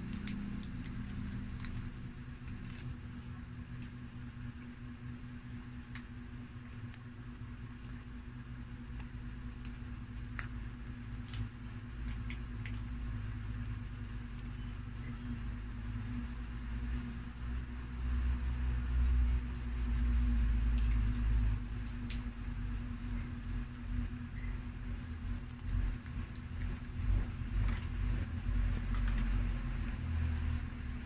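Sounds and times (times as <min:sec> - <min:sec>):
plastic sachets crinkling: 0:00.0 - 0:04.3
low electrical hum: 0:00.0 - 0:31.0.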